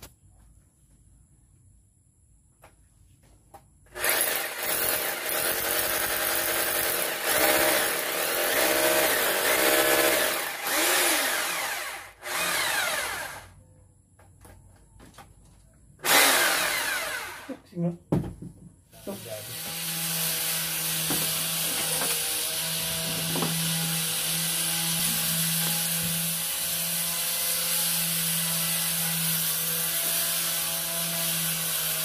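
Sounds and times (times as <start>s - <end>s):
power drill boring into masonry: 3.9s - 13.6s, 16.0s - 17.6s, 19.0s - 32.0s.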